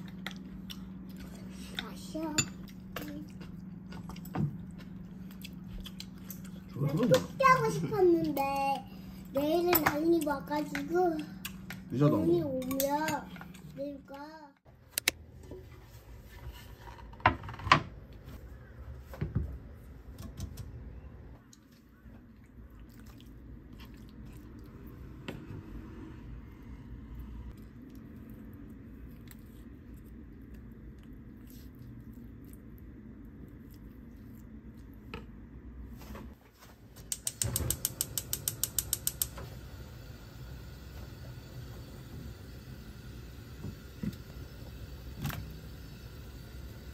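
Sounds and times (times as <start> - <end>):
gas igniter clicking: 37.1 - 39.4
gas burner hissing: 37.1 - 46.9.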